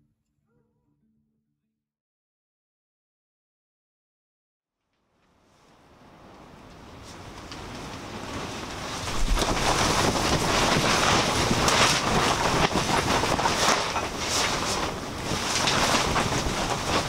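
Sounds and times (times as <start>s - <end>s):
fabric flapping and snapping: 6.8s - 17.0s
strong wind rushing: 7.7s - 17.0s.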